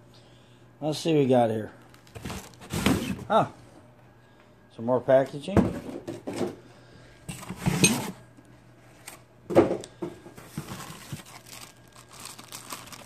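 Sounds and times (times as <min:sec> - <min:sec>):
packing material rustling and tearing: 0:01.9 - 0:03.1, 0:10.5 - 0:13.0.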